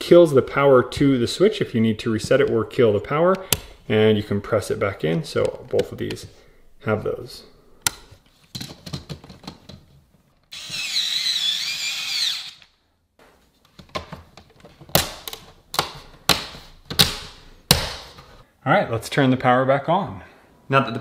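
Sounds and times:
power drill whining: 10.5 - 12.7.

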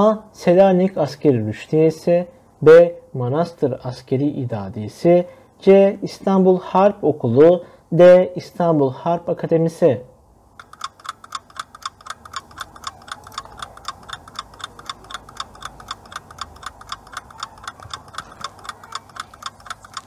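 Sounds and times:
clock ticking fast: 10.6 - 20.0.

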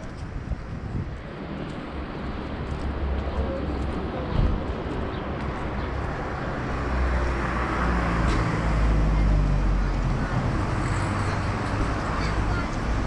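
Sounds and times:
city street hum: 0.0 - 13.0
vehicle passing: 5.6 - 13.0.

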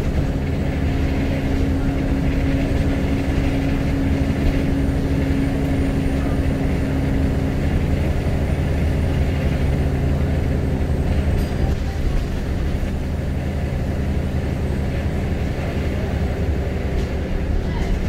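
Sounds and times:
bus engine rumble and hum: 0.0 - 18.0.

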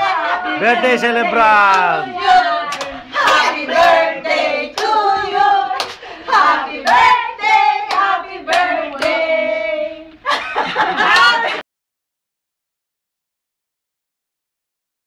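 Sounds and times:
group singing: 0.0 - 11.5.

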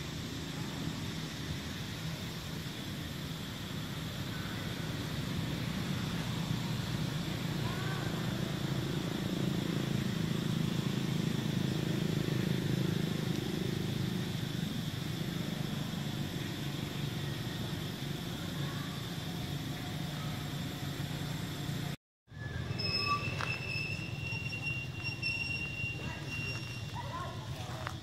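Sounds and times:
faint high hiss: 0.0 - 22.0
faint chirps: 0.0 - 27.9.

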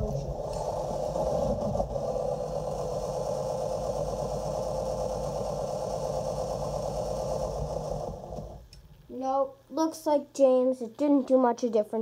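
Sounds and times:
small electric motor whirring: 0.0 - 8.8.

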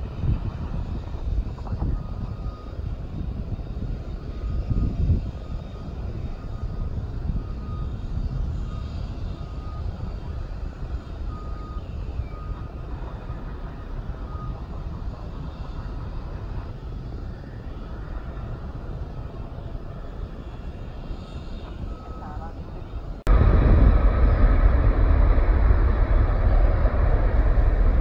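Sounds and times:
distant jet engines rumbling: 0.0 - 28.0
faint high-pitched beeps: 4.1 - 16.2, 19.9 - 22.9.

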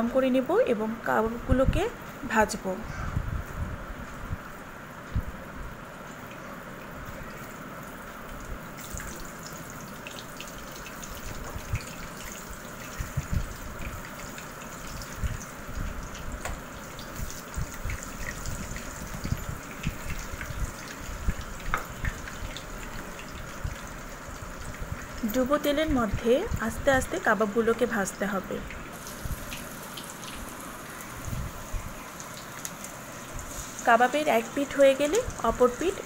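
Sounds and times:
patties sizzling in hot oil: 6.0 - 36.0
oil popping and crackling: 6.2 - 26.8, 28.7 - 36.0.

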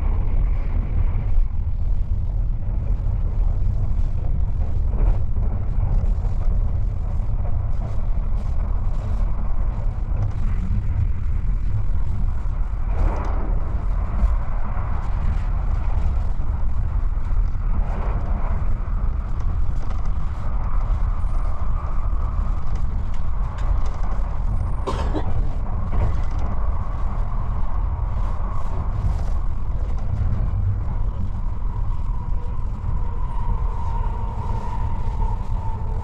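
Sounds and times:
train wheels rumbling on rail: 0.0 - 36.0
thin whine: 25.8 - 36.0.

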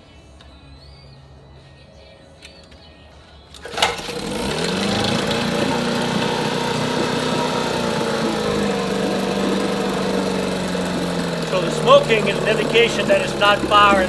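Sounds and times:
outboard motor running: 3.6 - 14.0.

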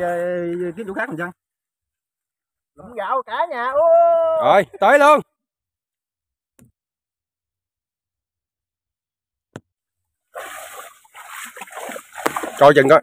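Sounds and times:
water sloshing hiss: 10.4 - 13.0.

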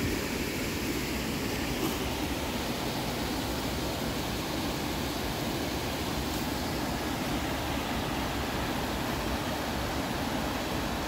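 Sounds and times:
creek rushing over rocks: 0.0 - 11.0.

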